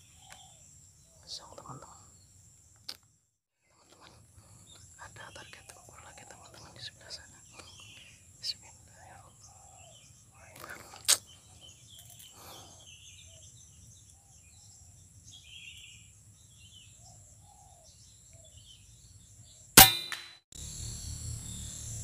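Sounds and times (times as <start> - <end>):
air rifle shot: 19.8 - 20.4.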